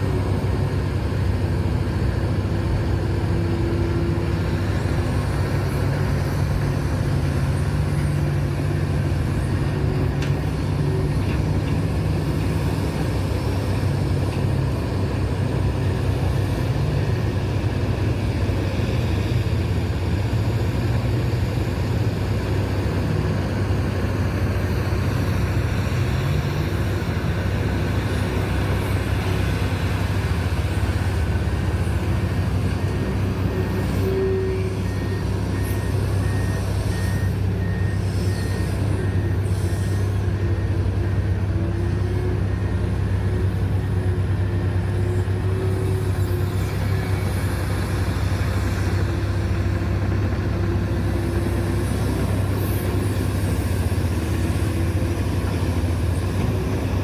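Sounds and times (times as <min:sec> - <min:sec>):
excavator diesel engine running: 0:00.0 - 0:57.0
faint beeping alarm: 0:32.1 - 0:57.0.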